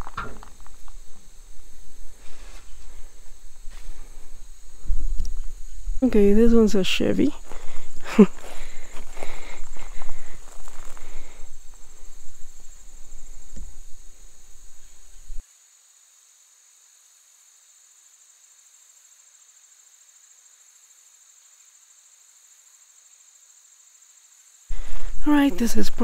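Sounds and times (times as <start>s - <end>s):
outdoor rumbling: 0.0s - 15.4s
insects chirring: 0.0s - 26.0s.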